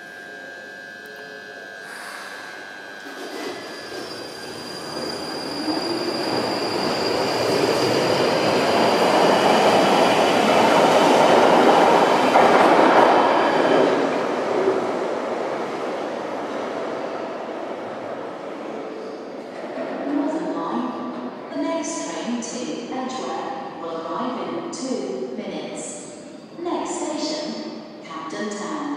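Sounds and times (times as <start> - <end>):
thin high whine: 0.0 - 8.0
wheel squeal: 3.3 - 8.3.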